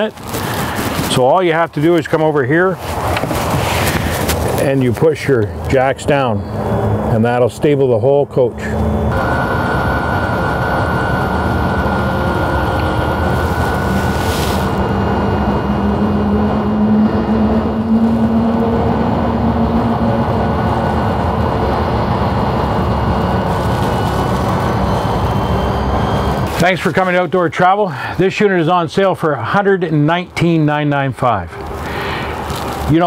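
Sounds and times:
motor hum with thin whine: 8.8s - 16.7s.

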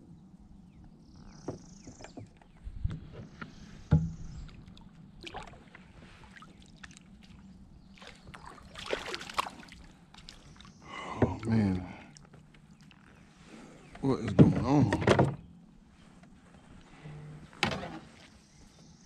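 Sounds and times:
knocks and thumps in a boat: 1.3s - 6.0s, 11.1s - 11.5s, 13.9s - 15.6s, 17.5s - 18.9s
water splash: 4.4s - 7.4s, 8.0s - 10.5s.

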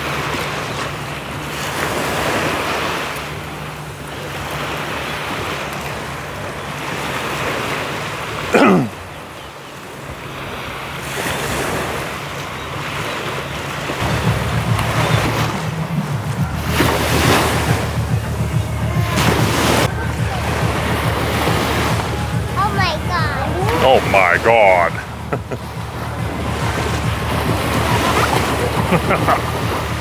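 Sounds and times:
waves washing onto beach: 0.0s - 30.0s
low pulsing bass: 14.0s - 30.0s.

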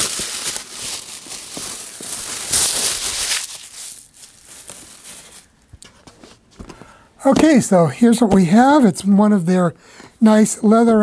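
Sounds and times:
tissue paper rustling: 0.0s - 6.4s.

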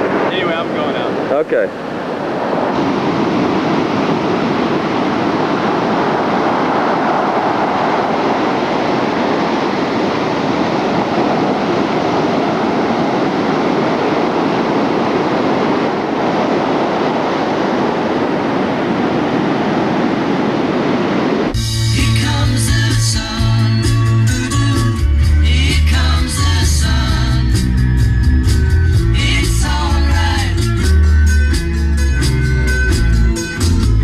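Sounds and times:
ocean surf breaking: 0.0s - 21.6s.

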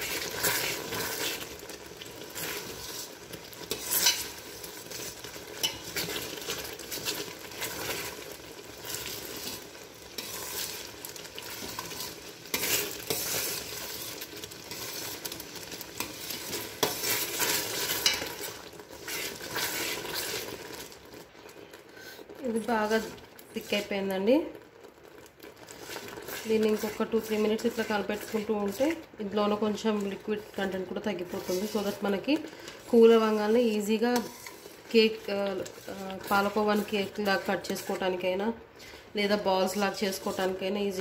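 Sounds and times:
milk sizzling: 0.0s - 41.0s
spatula scraping steel pot: 2.4s - 8.2s, 8.9s - 15.4s, 16.0s - 20.6s, 31.2s - 38.0s.

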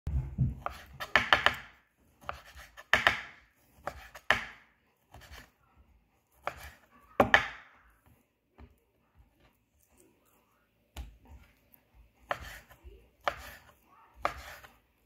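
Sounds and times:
knife cutting meat on wooden board: 0.5s - 5.5s, 6.3s - 7.4s, 12.2s - 14.8s.

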